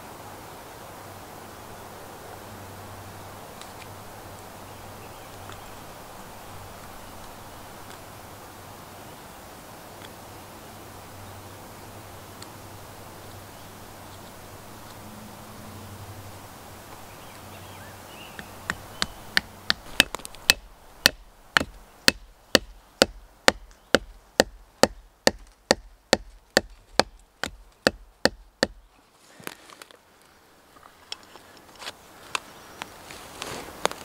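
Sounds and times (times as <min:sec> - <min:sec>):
axe knocking wooden spile: 0:18.4 - 0:28.8.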